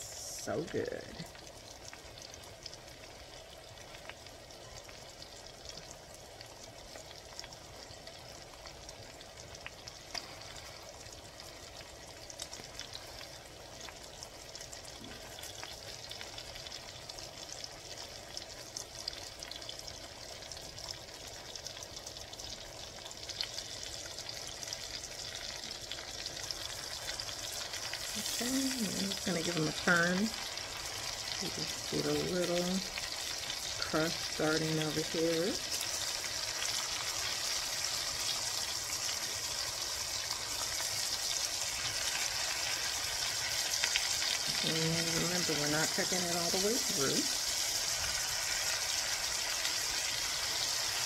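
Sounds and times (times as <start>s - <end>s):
meat sizzling in a skillet: 0.0s - 51.0s.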